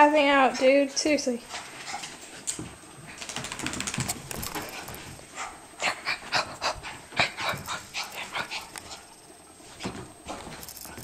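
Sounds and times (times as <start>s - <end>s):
dog panting: 1.4s - 9.1s.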